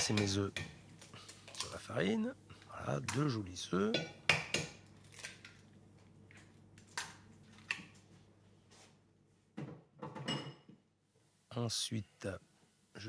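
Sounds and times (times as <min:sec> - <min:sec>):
kitchen clicks and taps: 0:00.0 - 0:00.8, 0:03.0 - 0:05.6
kitchen knocks: 0:09.6 - 0:10.8.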